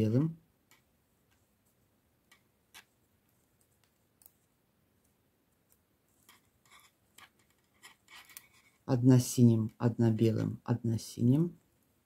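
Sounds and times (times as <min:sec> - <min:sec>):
knitting needles clicking: 0:02.2 - 0:08.8.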